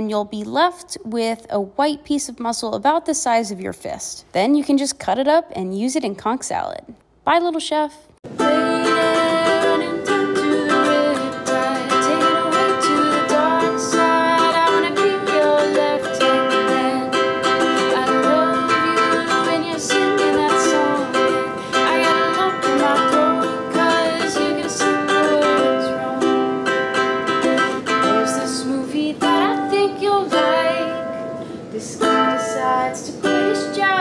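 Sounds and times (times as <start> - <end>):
person singing: 8.3 - 34.0
ukulele strummed in chords: 8.3 - 34.0.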